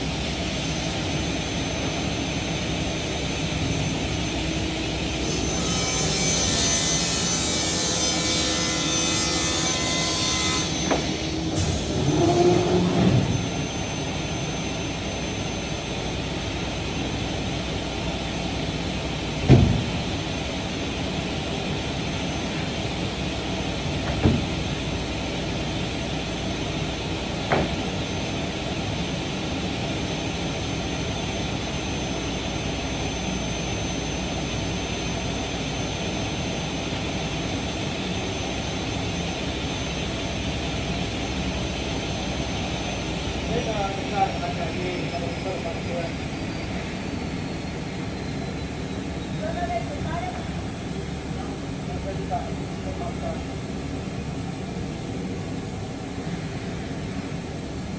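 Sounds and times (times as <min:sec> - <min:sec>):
thin high whine: 0:00.0 - 0:19.3
woodworking machinery drone: 0:00.0 - 0:57.9.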